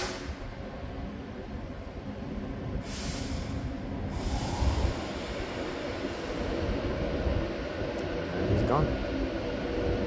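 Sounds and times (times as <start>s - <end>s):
short hiss: 2.8s - 5.3s.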